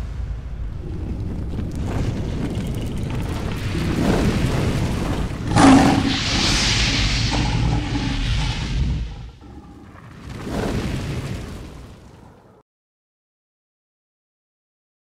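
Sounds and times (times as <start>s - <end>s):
sudden boom: 0.0s - 11.0s
rushing fiery hiss: 0.0s - 11.6s
low rumble: 0.0s - 12.3s.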